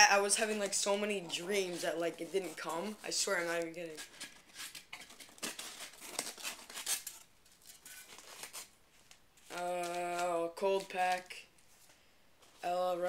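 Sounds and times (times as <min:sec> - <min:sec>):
person speaking: 0:00.0 - 0:04.2, 0:09.5 - 0:11.5, 0:12.6 - 0:13.0
packing materials rustling: 0:00.2 - 0:12.6.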